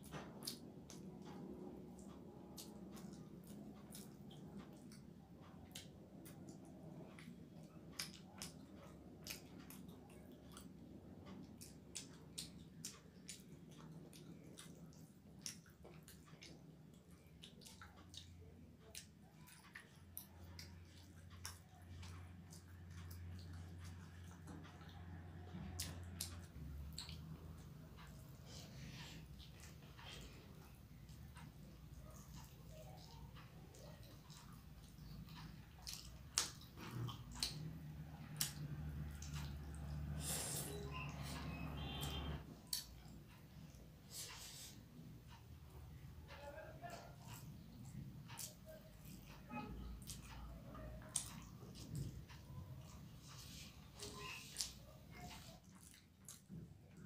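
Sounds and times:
chewing and lip smacking: 0:00.0 - 0:57.0
sharp wet clicks: 0:00.0 - 0:57.0.

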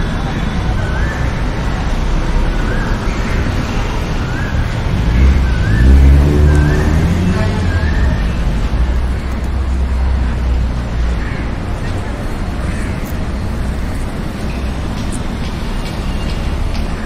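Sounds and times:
low road rumble: 0:00.0 - 0:17.0
vehicle engine passing: 0:04.6 - 0:09.9.

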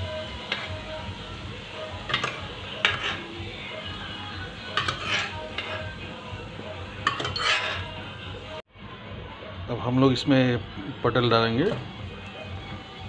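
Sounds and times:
hot oil sizzling: 0:00.0 - 0:08.6, 0:10.2 - 0:13.0
metal spoon scraping a pot: 0:00.4 - 0:00.8, 0:02.0 - 0:03.4, 0:04.6 - 0:06.0, 0:07.0 - 0:08.0.

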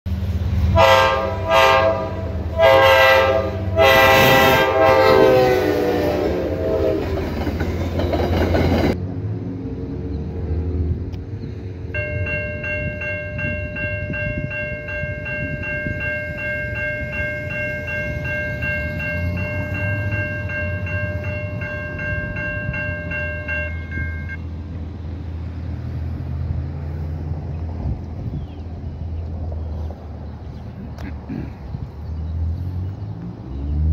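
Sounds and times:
train rumble: 0:00.1 - 0:33.9
train horn blasts: 0:00.7 - 0:07.4
electronic level-crossing bell: 0:11.9 - 0:24.4.

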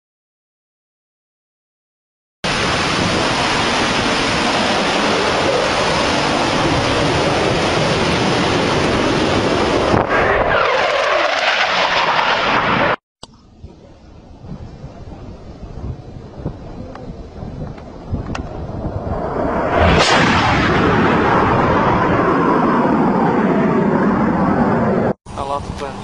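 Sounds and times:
wind noise on microphone: 0:02.5 - 0:10.6, 0:13.2 - 0:23.7
jet roar with falling whine: 0:02.5 - 0:13.0, 0:13.8 - 0:26.0.

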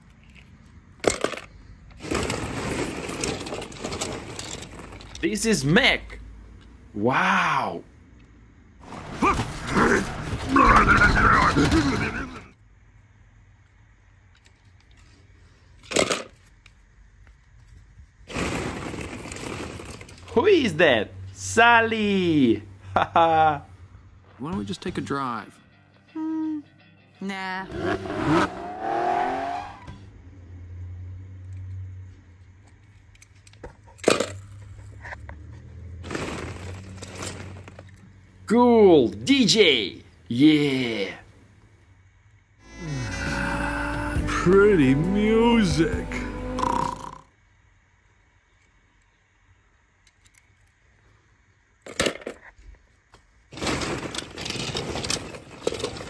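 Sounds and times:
toy car and plastic balls clinking: 0:00.0 - 0:06.2, 0:15.8 - 0:16.8, 0:18.3 - 0:20.4, 0:32.7 - 0:38.5, 0:51.8 - 0:52.6, 0:53.5 - 0:56.0
car engine revving and driving off: 0:27.6 - 0:32.1, 0:34.8 - 0:38.4, 0:42.6 - 0:47.2.

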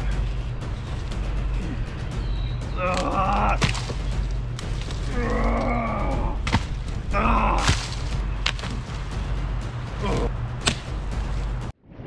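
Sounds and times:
wooden branch cracking against logs: 0:02.8 - 0:09.2, 0:10.0 - 0:11.5.

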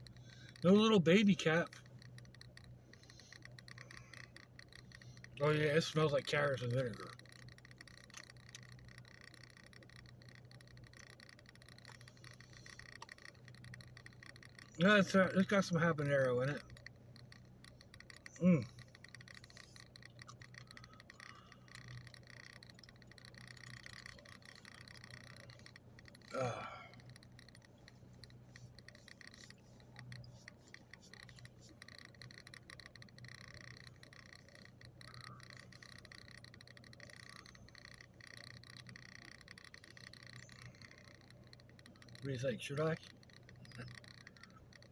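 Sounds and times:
faint light ticking: 0:00.0 - 0:44.9
faint low hum: 0:00.0 - 0:44.9
rapid uneven clicking: 0:00.0 - 0:44.9.

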